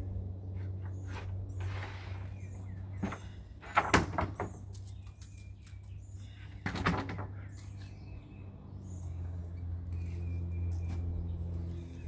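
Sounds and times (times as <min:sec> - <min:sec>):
steady low hum: 0:00.0 - 0:03.9.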